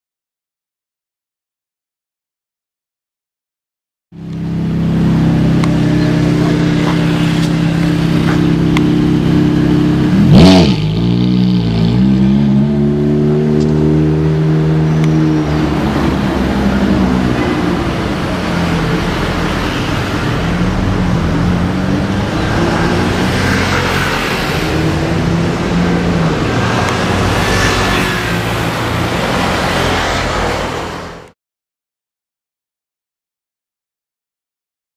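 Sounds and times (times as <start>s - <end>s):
car engine idling and revving: 4.1s - 31.3s.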